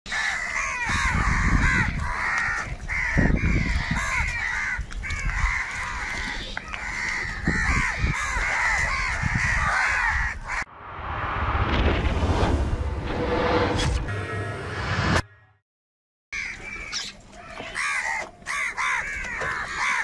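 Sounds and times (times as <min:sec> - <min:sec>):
crows cawing: 0:00.1 - 0:10.7, 0:16.4 - 0:20.0.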